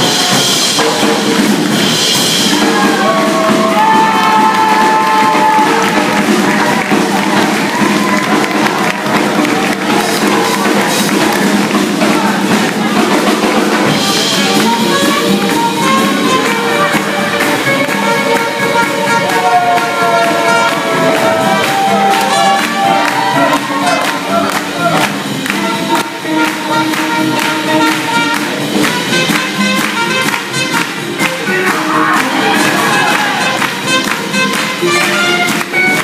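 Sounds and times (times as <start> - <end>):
swing band playing dance music: 0.0 - 36.0
trumpet lines: 13.8 - 36.0.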